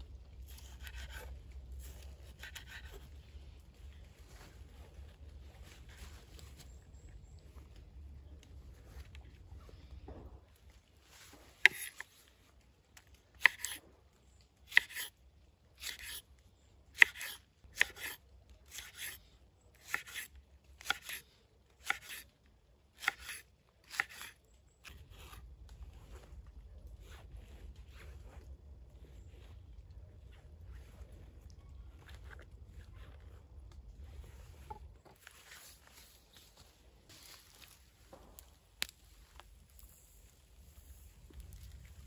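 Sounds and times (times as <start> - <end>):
soft handling noise: 0.0 - 13.3, 24.9 - 42.0.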